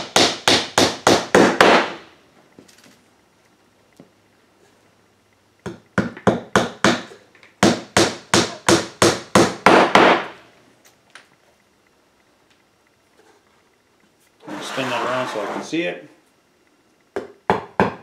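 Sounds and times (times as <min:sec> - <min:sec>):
hammer hitting a nail into wood: 0:00.0 - 0:02.0, 0:05.6 - 0:10.4, 0:17.2 - 0:18.0.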